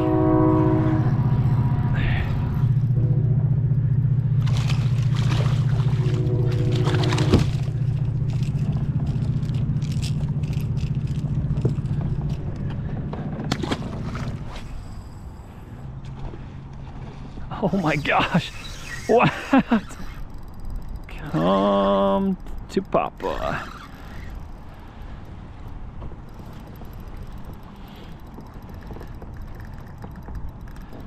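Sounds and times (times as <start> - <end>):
low hum: 0.0 - 31.0
fish splashing: 4.4 - 10.6.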